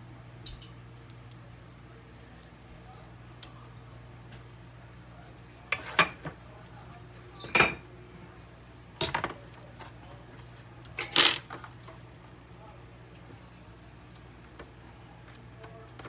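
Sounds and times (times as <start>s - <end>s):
cutlery clattering on saucepan: 5.7s - 6.3s, 11.0s - 11.6s.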